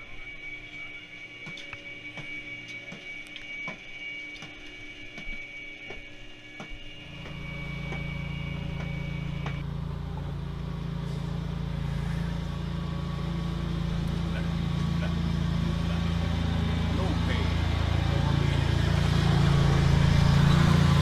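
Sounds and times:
high whine of lift machinery: 0.0 - 21.0
low hum and rumble: 0.0 - 21.0.

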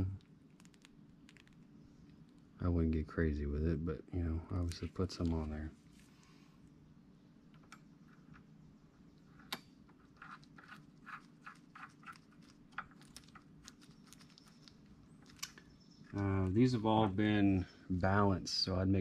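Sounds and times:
low steady hum: 0.0 - 19.0
faint clicks and light taps: 7.5 - 8.5.

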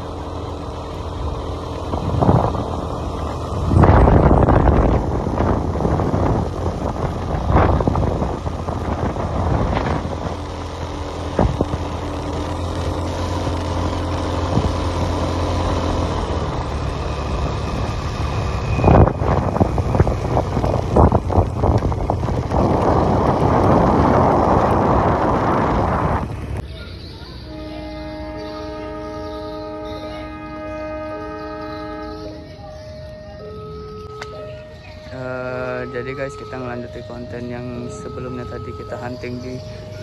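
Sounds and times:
motorcycle engine running: 0.0 - 36.0
wind on microphone: 1.9 - 10.5, 11.2 - 12.6, 17.3 - 26.6.

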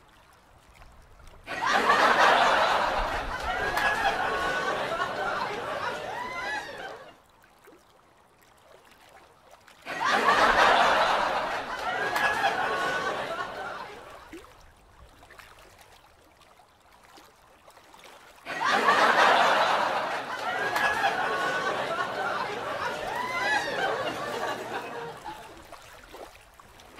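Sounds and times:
people laughing: 1.5 - 7.2, 9.9 - 14.3, 18.5 - 25.7.

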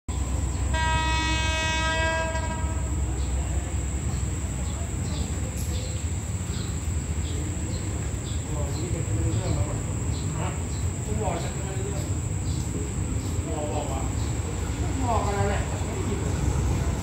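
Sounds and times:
insect chirps: 0.1 - 17.0
train horn blast: 0.7 - 3.4.

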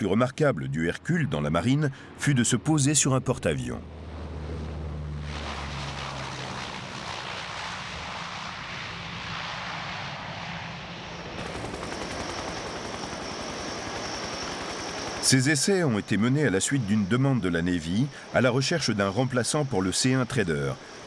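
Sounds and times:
turboprop engines running: 0.0 - 21.0
low hum: 1.0 - 15.2.

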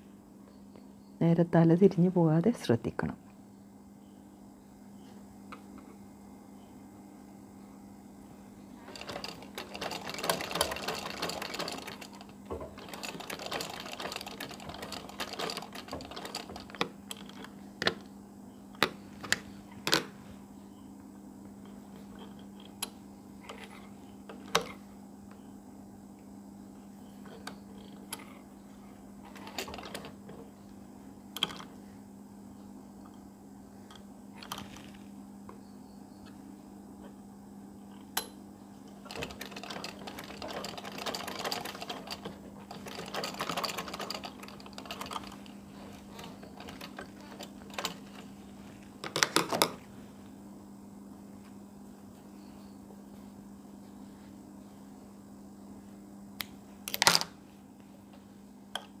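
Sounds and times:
sewing machine clicks and knocks: 8.9 - 18.0, 39.1 - 48.3.

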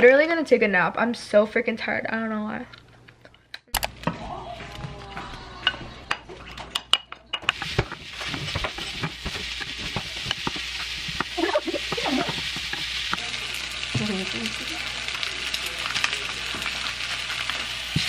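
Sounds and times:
spatula scraping a pan: 7.5 - 13.2
food sizzling in a pan: 7.5 - 18.0.

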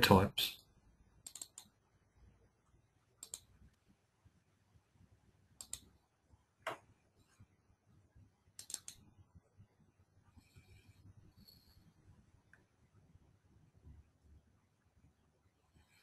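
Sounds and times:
computer mouse clicks: 1.2 - 1.8, 3.2 - 3.8, 5.6 - 6.0, 8.5 - 9.1.

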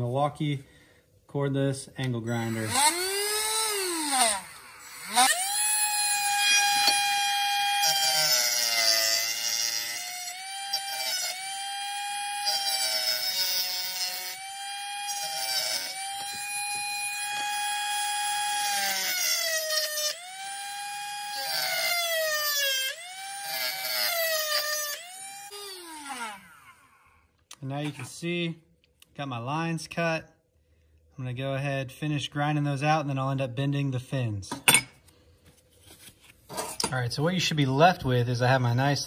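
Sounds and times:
rotary tool cutting metal: 2.3 - 27.0.

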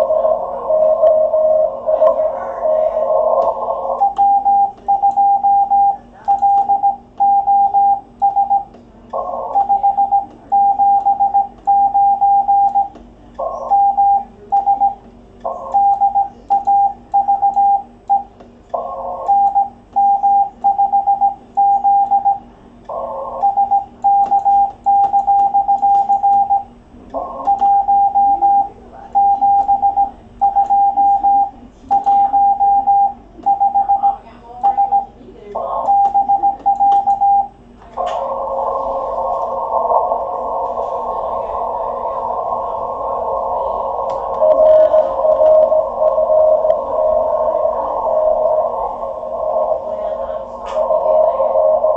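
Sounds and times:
rough radio noise burst: 0.0 - 4.9, 9.2 - 10.6, 35.6 - 51.9
morse code beeps: 0.0 - 49.9.

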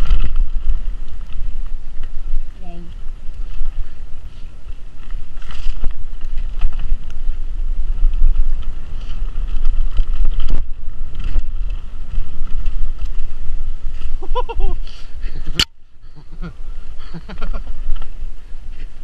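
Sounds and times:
bike knocking and rattling: 0.0 - 15.7
tyre noise on dirt: 0.0 - 19.0
wind rumble on microphone: 0.0 - 19.0.

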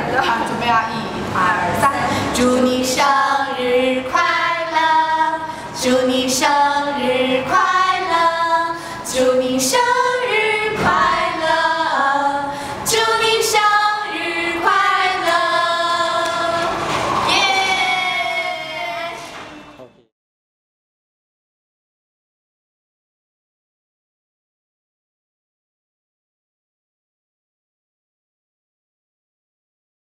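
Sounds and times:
women singing in unison: 2.1 - 19.5.

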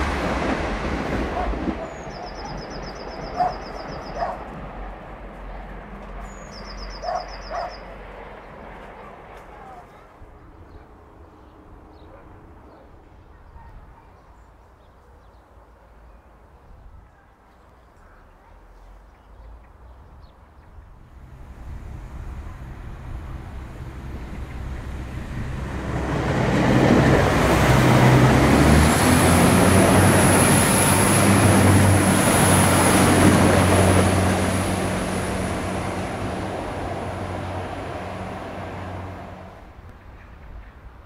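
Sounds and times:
train wheels rumbling on rails: 0.0 - 7.7, 21.0 - 41.0
diesel train engines droning: 0.0 - 10.0, 20.9 - 41.0.

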